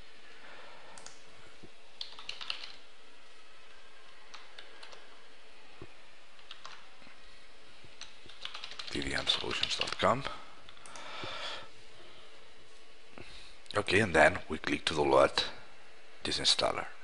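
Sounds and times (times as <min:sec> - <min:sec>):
computer keyboard typing: 0:01.0 - 0:01.2, 0:02.0 - 0:02.9, 0:04.3 - 0:05.1, 0:06.4 - 0:06.9, 0:08.0 - 0:10.1.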